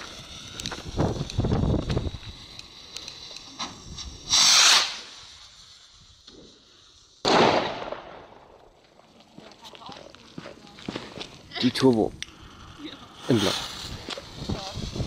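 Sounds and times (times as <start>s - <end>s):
fuse crackling: 0.0s - 6.6s, 7.6s - 15.0s
rocket hissing whoosh: 0.0s - 8.7s, 11.4s - 15.0s
firework bang: 3.6s - 5.3s, 7.2s - 8.6s.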